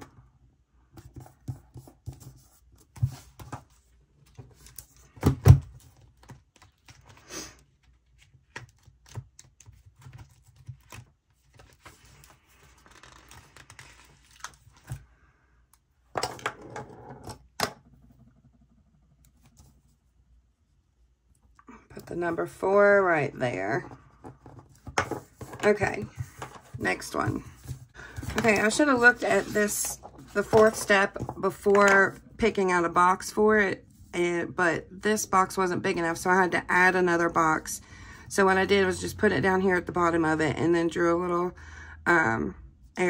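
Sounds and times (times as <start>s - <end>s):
paper rustling: 5.8s - 15.0s, 24.4s - 32.1s.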